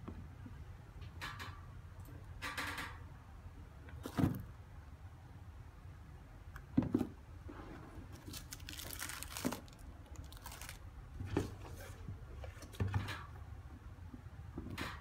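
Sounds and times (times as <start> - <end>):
plastic packaging crinkling: 8.1 - 10.9.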